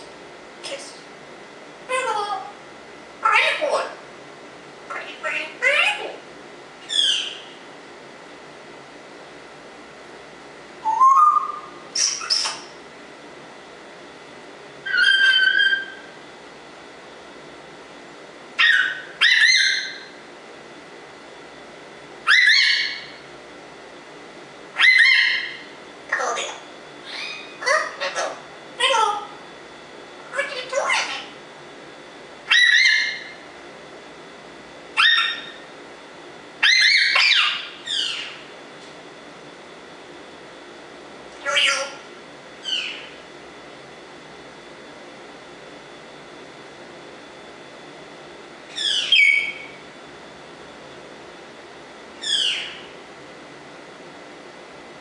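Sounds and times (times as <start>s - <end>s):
parrot whistling: 6.8s - 7.5s, 10.8s - 12.6s, 14.8s - 16.1s, 18.6s - 20.1s, 22.3s - 23.1s, 24.8s - 25.6s, 27.0s - 28.4s, 32.5s - 33.3s, 35.0s - 35.6s, 36.6s - 38.4s, 42.6s - 43.1s, 48.7s - 49.8s, 52.2s - 52.8s
parrot harsh notes: 14.8s - 16.0s.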